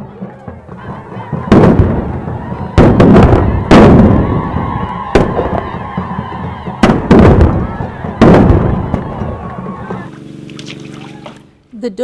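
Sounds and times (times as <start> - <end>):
flintlock rifles firing: 1.4 - 5.9, 6.8 - 11.5.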